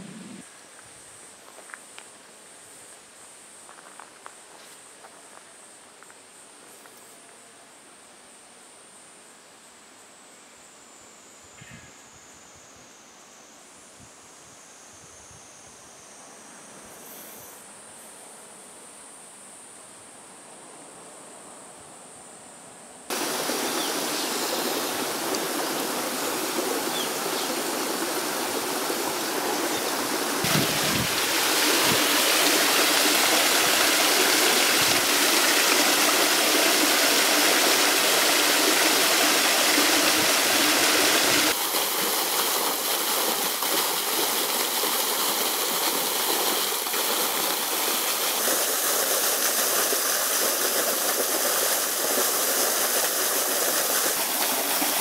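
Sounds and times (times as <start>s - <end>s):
stream splashing over rocks: 23.1s - 55.0s.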